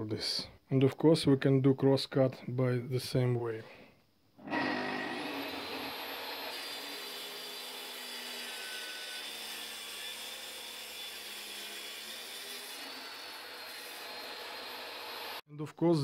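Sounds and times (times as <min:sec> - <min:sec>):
saw cutting wooden board: 0:04.4 - 0:15.4.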